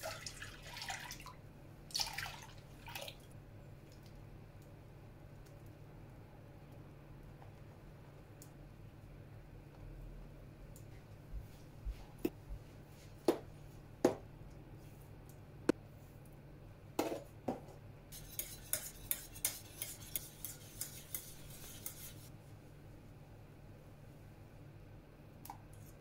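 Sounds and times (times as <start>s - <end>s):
whisk clattering in pot: 18.2s - 22.3s.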